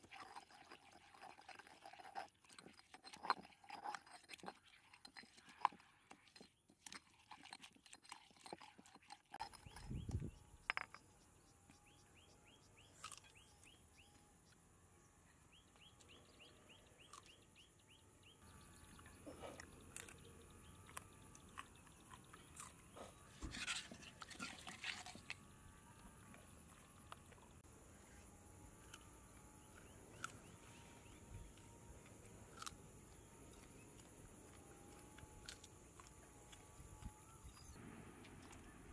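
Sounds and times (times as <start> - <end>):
stone pestle grinding in mortar: 0.0 - 5.9, 23.3 - 25.2.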